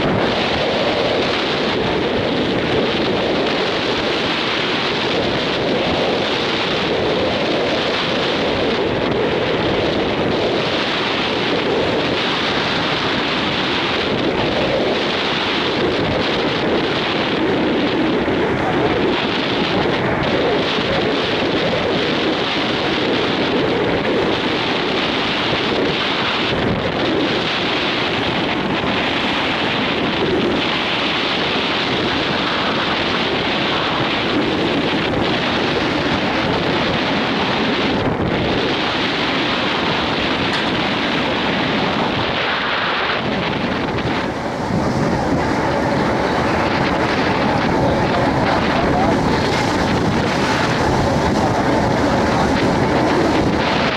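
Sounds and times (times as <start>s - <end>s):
sea wash: 0.0s - 53.9s
wind on microphone: 0.0s - 53.9s.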